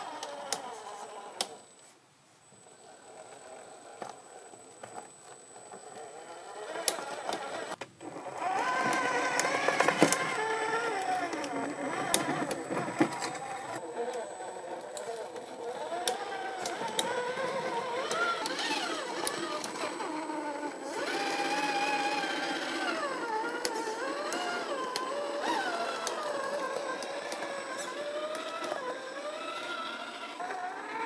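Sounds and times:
electric motor and gear whine: 0.0 - 1.9, 2.5 - 31.0.

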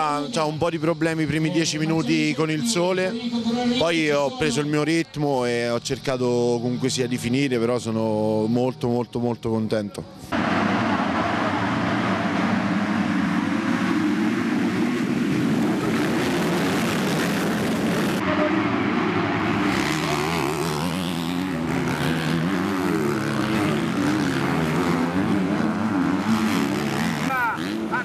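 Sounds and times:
motocross bikes revving: 12.0 - 28.0
single bike revving past: 14.5 - 28.0.

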